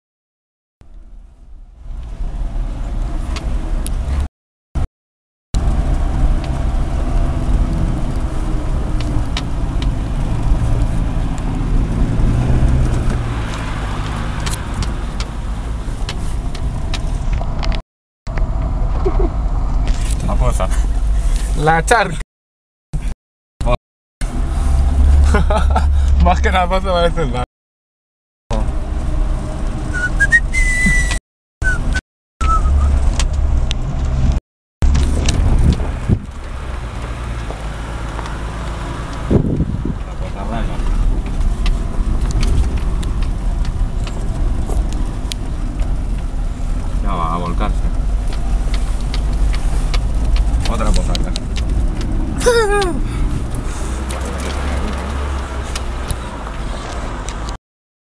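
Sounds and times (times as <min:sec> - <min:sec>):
off-road vehicle engine running: 0:05.6 - 0:21.8, 0:23.0 - 0:27.4, 0:28.5 - 0:57.6
whistle-like notes: 0:29.9 - 0:33.0
vehicle knocks and rattles: 0:33.0 - 0:47.0.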